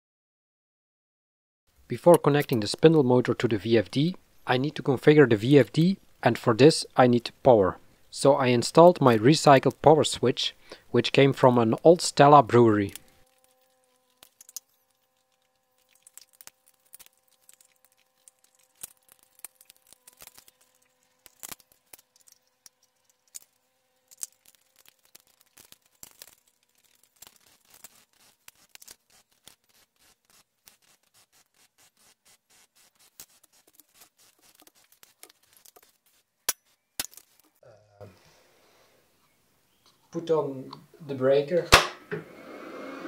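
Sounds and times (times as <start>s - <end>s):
handling clicks and scrapes: 12.9s - 37.6s.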